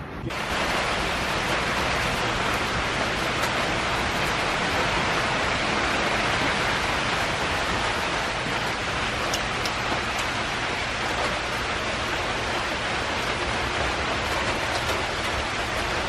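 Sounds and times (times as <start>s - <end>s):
heavy rain falling: 0.0s - 16.0s
drops ticking: 9.2s - 10.5s.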